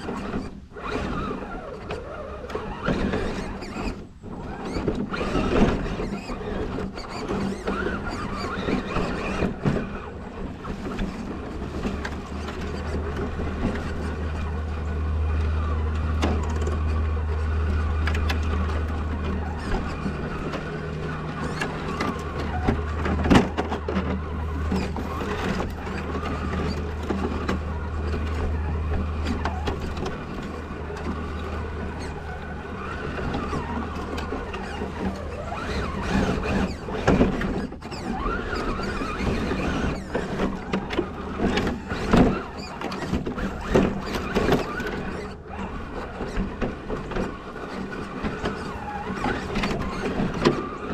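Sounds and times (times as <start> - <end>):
rc truck motor whining: 0.0 - 50.9
knocks and clatters: 4.6 - 50.9
low hum: 9.5 - 37.0.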